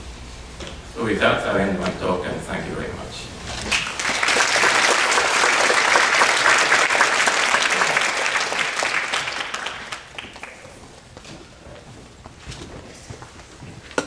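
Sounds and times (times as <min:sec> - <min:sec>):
audience applauding: 0:03.7 - 0:11.0.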